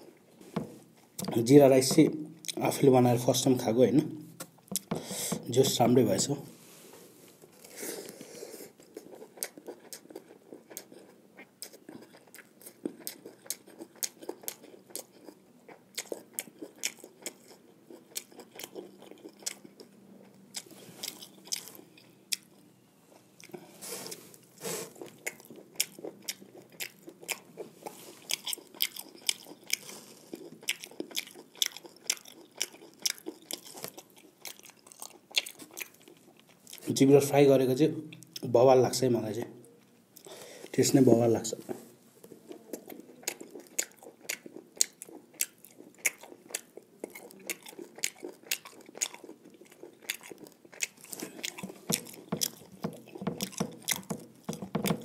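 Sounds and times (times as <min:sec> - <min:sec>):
close chewing and biting: 0:04.4 - 0:04.9, 0:07.6 - 0:37.0, 0:42.2 - 0:55.0.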